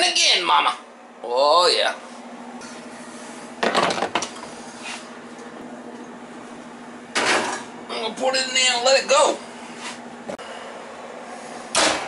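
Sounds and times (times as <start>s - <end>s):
kitchen fan humming: 0.0s - 12.0s
metal clattering of oven rack and pot: 3.6s - 4.4s, 7.1s - 7.7s.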